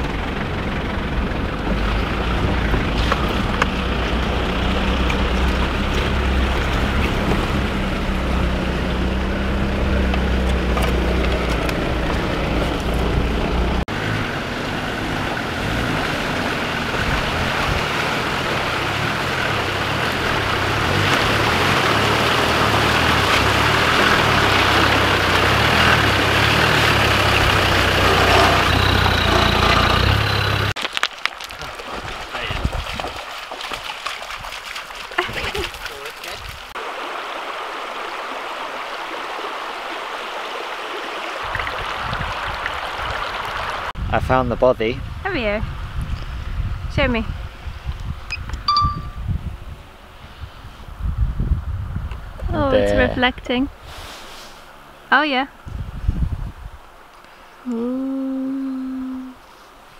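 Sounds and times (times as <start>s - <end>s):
vehicle driving through water: 0.0s - 44.4s
water splashing: 1.6s - 44.0s.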